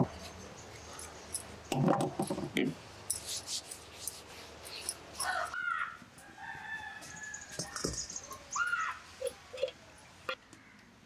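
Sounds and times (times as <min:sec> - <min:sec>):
rooster crowing: 0:05.2 - 0:07.8.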